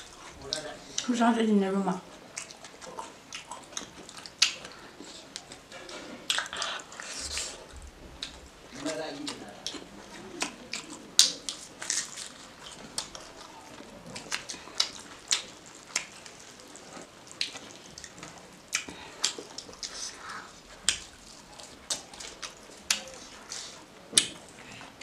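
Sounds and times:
wet chewing and lip-smacking: 0:02.1 - 0:25.0.

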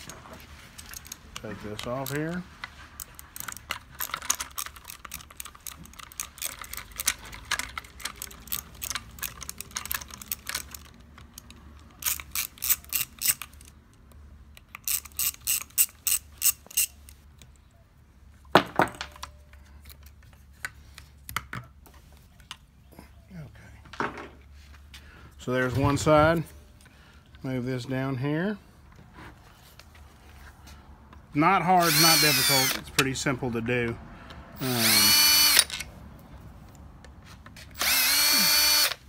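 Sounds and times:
hand ratchet clicking: 0:03.0 - 0:13.7, 0:14.6 - 0:17.2, 0:34.6 - 0:35.8, 0:37.8 - 0:39.0.

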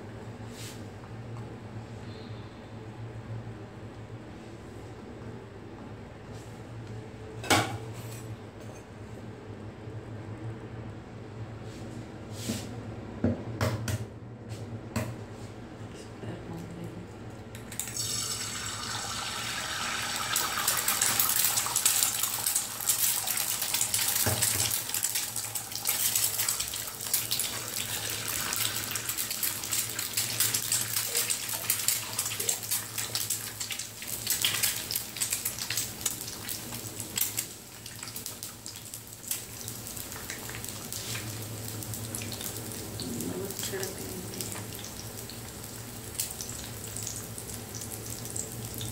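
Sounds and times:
egg sizzling on a griddle: 0:17.7 - 0:43.6, 0:44.5 - 0:48.9.

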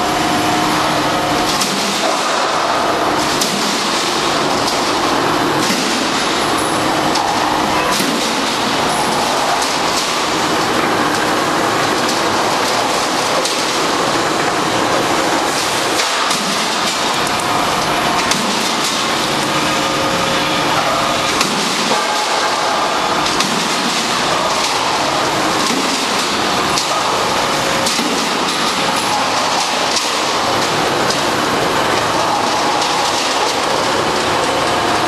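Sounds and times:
roll forming machine running: 0:00.0 - 0:35.0.

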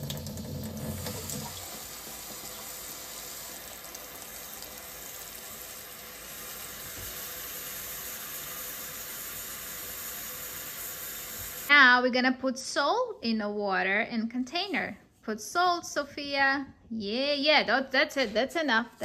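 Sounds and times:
water running from faucet: 0:00.0 - 0:11.7.

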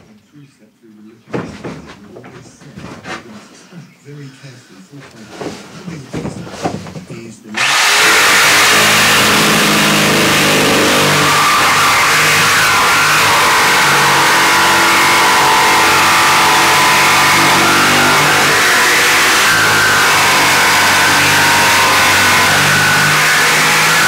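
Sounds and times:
jigsaw cutting plywood: 0:07.6 - 0:24.0.

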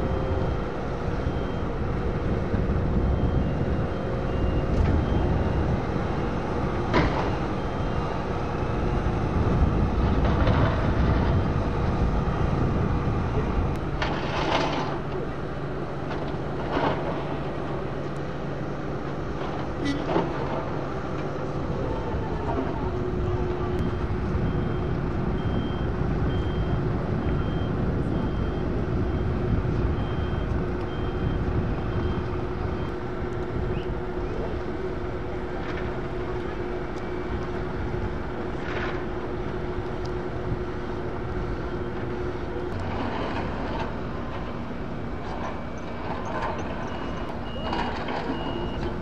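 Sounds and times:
reversing alarm beeping: 0:00.0 - 0:09.8, 0:23.2 - 0:33.1, 0:45.3 - 0:49.0
paving machinery humming: 0:00.0 - 0:49.0.

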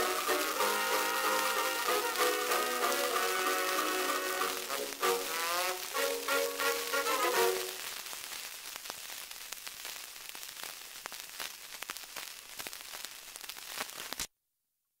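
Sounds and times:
record surface hiss and crackles: 0:00.0 - 0:14.3.

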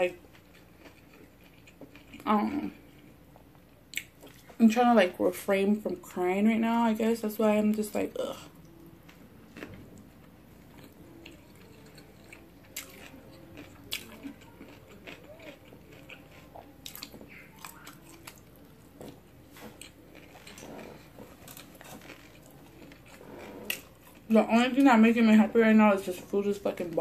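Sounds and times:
person chewing with wet smacks: 0:00.0 - 0:04.5, 0:08.5 - 0:24.3.

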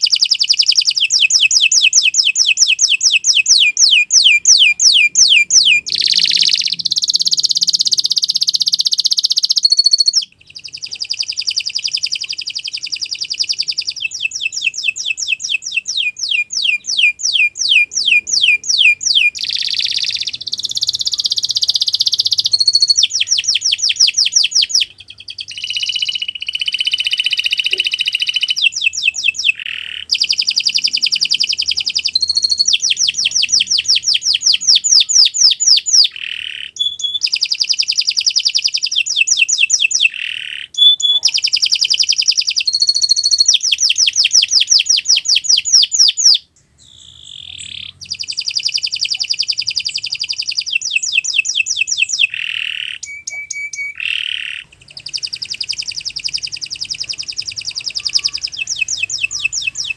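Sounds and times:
canary singing trills: 0:00.0 - 0:59.9.

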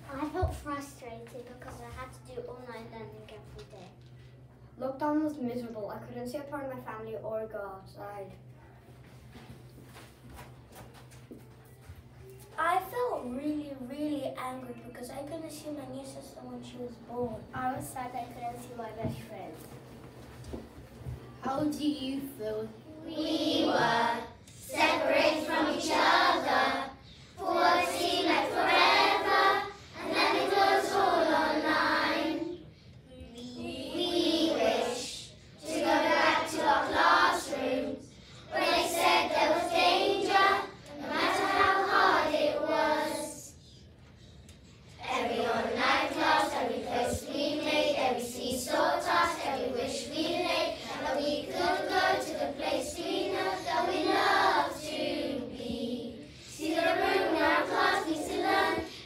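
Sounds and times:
children's choir singing: 0:23.1 - 0:32.6, 0:33.7 - 0:43.5, 0:45.0 - 0:58.9.

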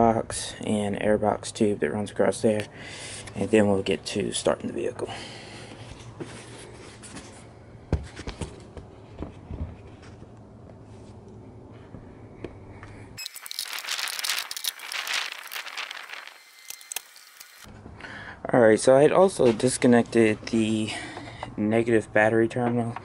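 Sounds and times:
plastic rustling and scraping: 0:13.2 - 0:17.7.

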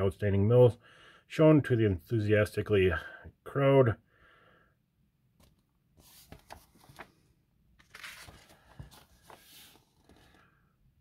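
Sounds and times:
paper pages rustling: 0:05.4 - 0:10.5.

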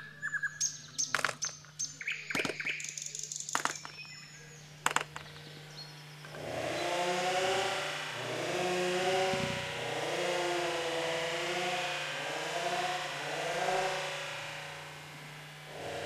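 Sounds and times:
small birds chirping: 0:00.0 - 0:07.7
sharp clicks: 0:01.0 - 0:01.7, 0:03.5 - 0:04.1, 0:04.8 - 0:05.5
loud steady rasping noise: 0:05.6 - 0:16.0.

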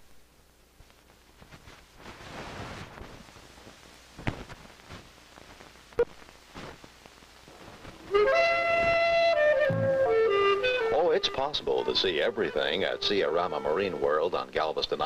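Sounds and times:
film soundtrack hiss: 0:00.0 - 0:15.0
flute-like woodwind melody: 0:08.1 - 0:14.0.

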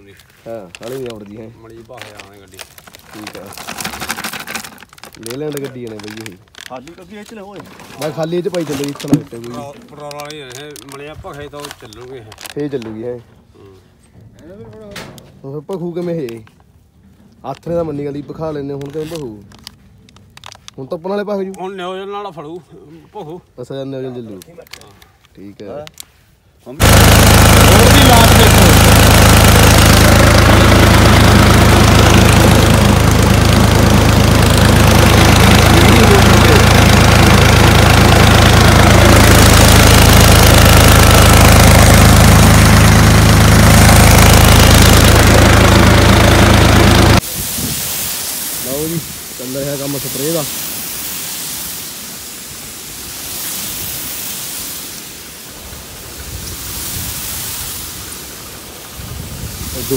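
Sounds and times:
diesel engine idling: 0:26.8 - 0:47.2
spray nozzle hissing: 0:26.8 - 0:59.9.

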